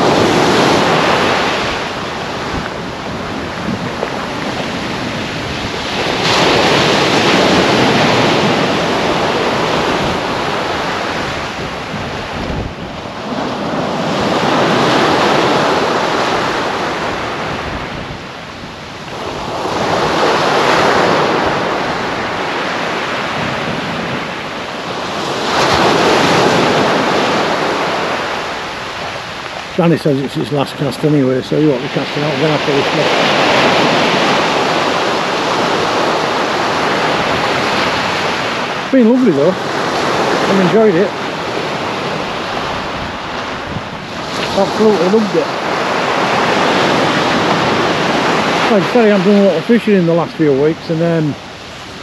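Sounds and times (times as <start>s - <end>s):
waves breaking on a beach: 0.0s - 52.0s
wind on microphone: 0.0s - 52.0s.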